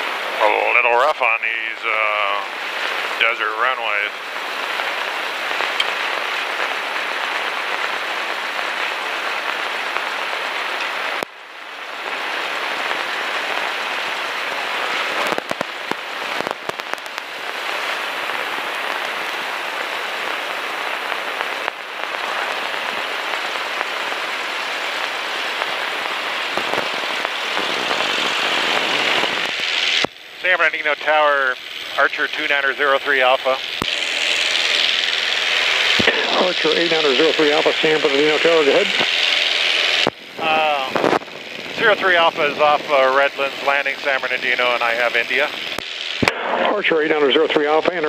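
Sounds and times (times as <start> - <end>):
propeller wash and wind hiss: 0.2 - 48.0.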